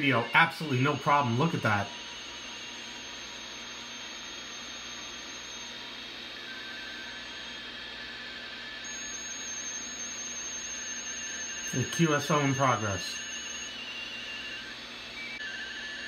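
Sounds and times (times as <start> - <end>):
faint data signal tones: 0.0 - 16.0
radio static and hiss: 11.6 - 13.4.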